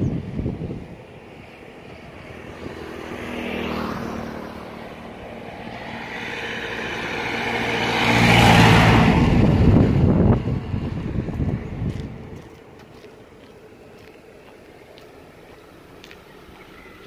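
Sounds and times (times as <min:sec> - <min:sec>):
passing vehicle noise: 0:00.0 - 0:17.0
car driving past: 0:01.5 - 0:12.6.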